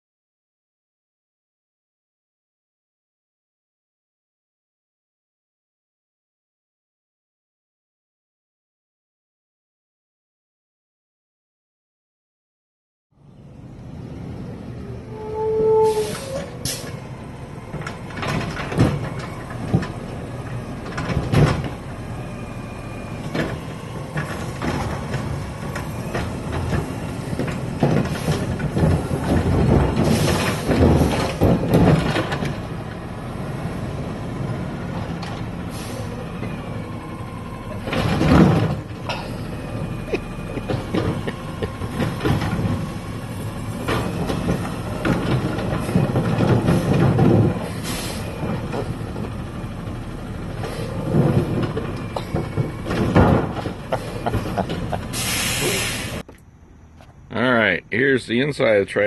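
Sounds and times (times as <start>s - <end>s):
diesel engine rumbling: 13.1s - 59.0s
hydraulic arm clunks: 15.1s - 33.1s, 34.3s - 56.4s
air brake hisses: 15.7s - 17.0s, 30.0s - 30.7s, 35.7s - 36.2s, 47.7s - 48.2s, 55.1s - 56.2s.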